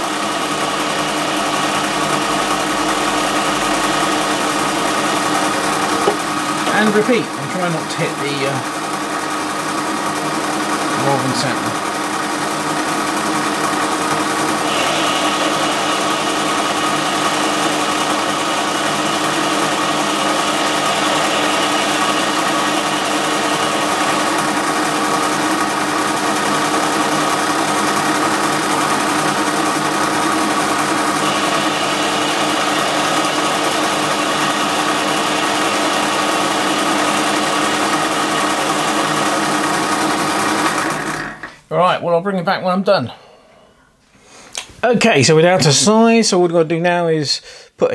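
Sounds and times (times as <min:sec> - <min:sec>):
metalworking lathe humming: 0:00.0 - 0:41.6
higher lathe note: 0:14.6 - 0:24.4.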